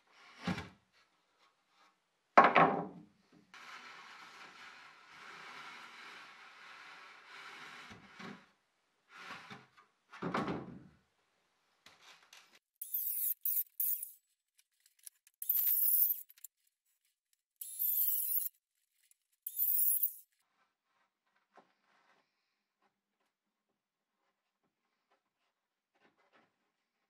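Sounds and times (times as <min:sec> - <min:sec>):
circular saw cutting wood: 0:12.8 - 0:14.2, 0:15.4 - 0:16.5, 0:17.6 - 0:18.5, 0:19.5 - 0:20.2.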